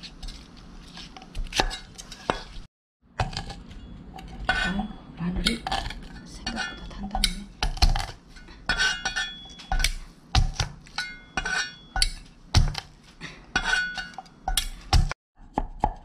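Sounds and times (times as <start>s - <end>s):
cleaver smashing garlic on board: 9.7s - 10.8s, 11.4s - 12.9s.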